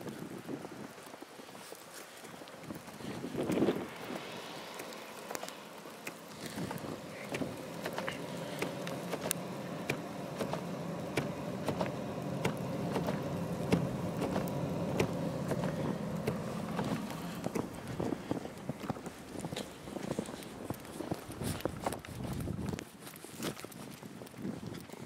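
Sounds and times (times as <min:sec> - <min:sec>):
car engine running: 0:02.8 - 0:22.8
sharp clicks: 0:04.7 - 0:22.0.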